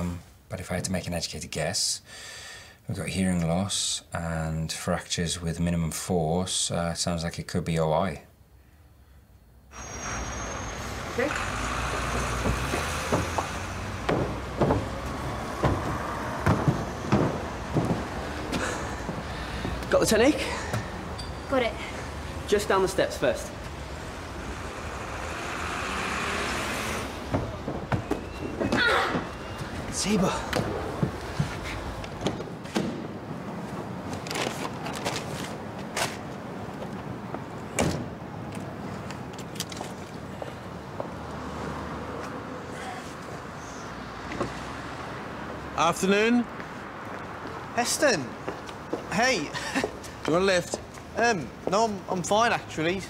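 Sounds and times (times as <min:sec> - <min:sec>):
low street background: 0:00.0 - 0:53.0
car door opening: 0:12.4 - 0:18.6
running footsteps and jump landings: 0:12.4 - 0:20.0, 0:27.2 - 0:33.0.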